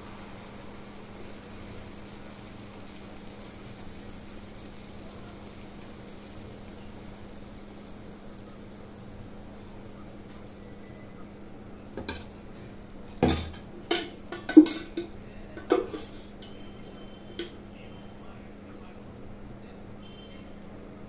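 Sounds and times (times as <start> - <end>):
steel ladles clanking on metal: 13.2 - 16.6.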